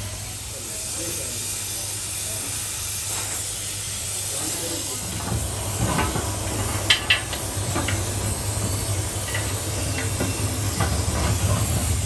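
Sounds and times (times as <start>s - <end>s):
gas torch flame hissing: 0.0s - 12.0s.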